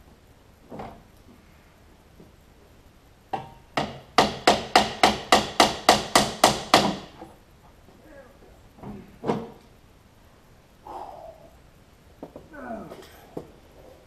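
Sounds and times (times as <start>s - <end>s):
hammer striking metal bumper: 3.4s - 7.2s.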